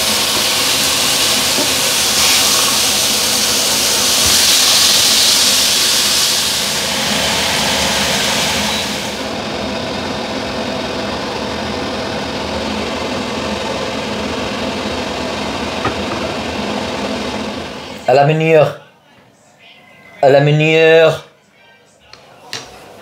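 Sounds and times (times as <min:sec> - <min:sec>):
fish frying in oil: 0:00.0 - 0:09.2.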